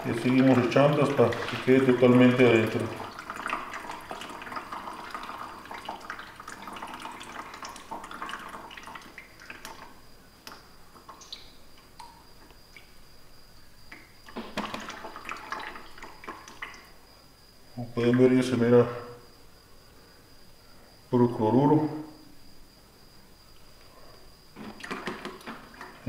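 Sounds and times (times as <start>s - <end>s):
liquid trickling and splashing: 0.0s - 12.9s, 14.0s - 17.0s, 24.6s - 26.0s
liquid drips: 0.0s - 13.0s, 13.9s - 17.0s.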